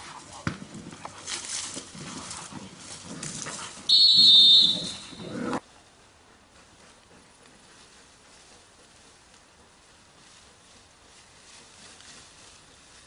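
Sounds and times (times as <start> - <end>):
shrill high tone: 3.9 - 5.5
dog growling: 4.8 - 5.6.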